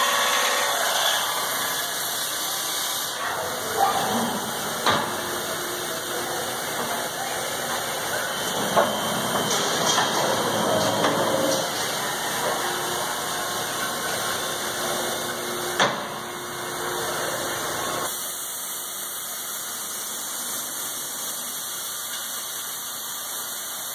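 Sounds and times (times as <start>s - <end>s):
machinery running: 0.0s - 18.1s
steady hiss: 16.8s - 23.9s.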